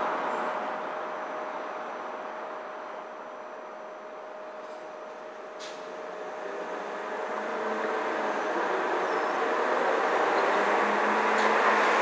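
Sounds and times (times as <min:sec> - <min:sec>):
vehicle tyre and road noise: 0:04.6 - 0:12.0.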